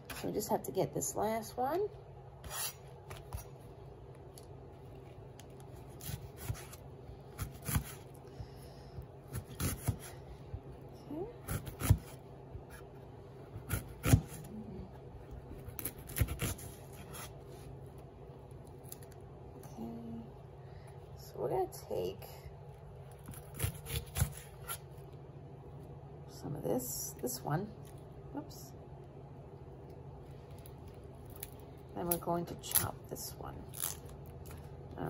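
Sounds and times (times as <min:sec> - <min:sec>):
knife slicing onion on board: 0:06.0 - 0:08.1, 0:09.2 - 0:10.2, 0:11.4 - 0:12.9, 0:13.5 - 0:14.5, 0:15.6 - 0:17.4, 0:23.2 - 0:24.8.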